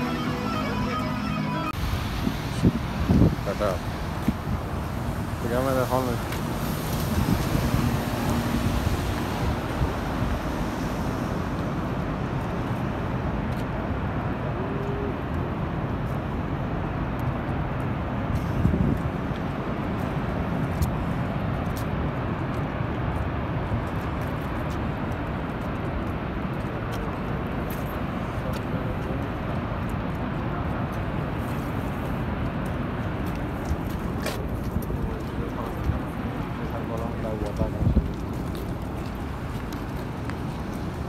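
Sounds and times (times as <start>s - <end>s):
waterfall rushing: 0.0s - 7.0s.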